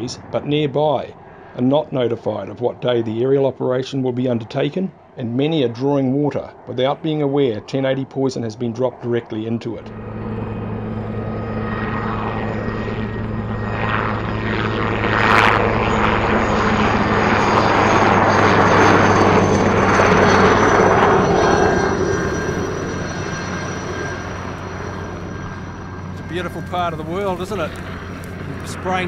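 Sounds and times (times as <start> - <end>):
helicopter flying past: 0.0 - 29.0.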